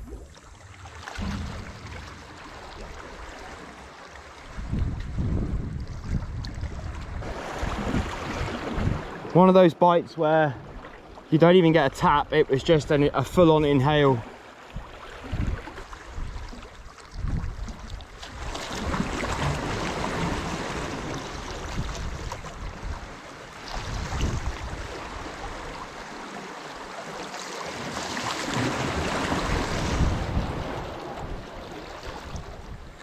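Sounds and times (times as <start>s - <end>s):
wind rumbling on microphone: 0.0s - 9.2s, 14.7s - 25.8s, 28.5s - 33.0s
waves washing against rocks: 18.3s - 33.0s.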